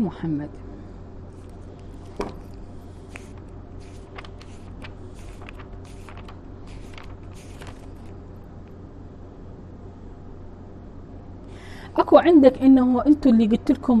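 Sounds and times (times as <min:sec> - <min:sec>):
low hum: 0:00.0 - 0:12.0
paper pages rustling: 0:01.3 - 0:08.5.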